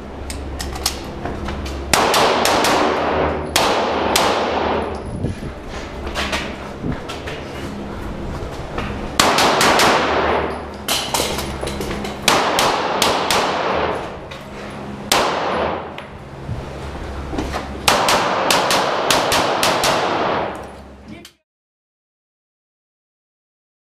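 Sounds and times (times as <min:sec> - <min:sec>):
handgun shots echoing: 0:01.9 - 0:05.0, 0:09.2 - 0:11.4, 0:12.2 - 0:14.0, 0:15.1 - 0:15.9, 0:17.8 - 0:20.6.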